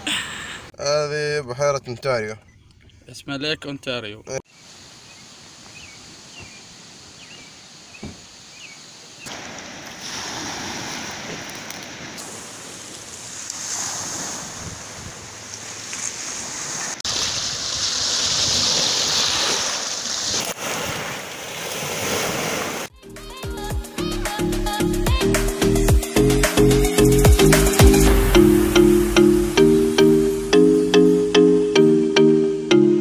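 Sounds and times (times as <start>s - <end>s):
waves washing onto pebble beach: 9.3s - 22.9s.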